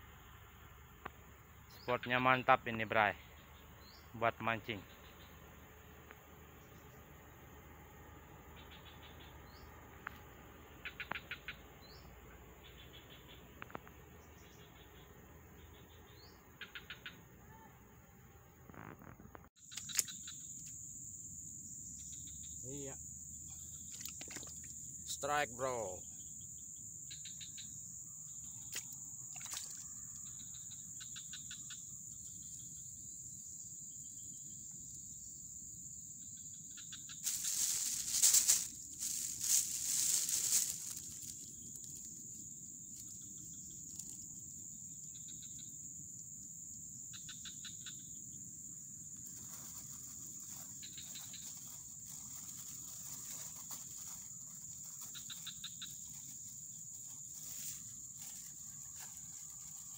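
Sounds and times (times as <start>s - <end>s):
insects droning: 0.0s - 59.9s
faint short chirping calls: 8.3s - 18.0s, 18.6s - 21.0s, 36.2s - 45.8s, 47.0s - 48.4s, 49.2s - 59.9s
loud rustling: 37.2s - 41.4s.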